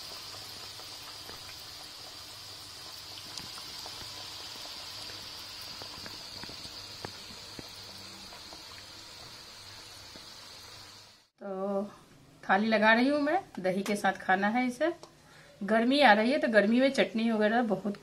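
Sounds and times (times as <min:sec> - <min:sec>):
food deep-frying in oil: 0:00.0 - 0:11.3.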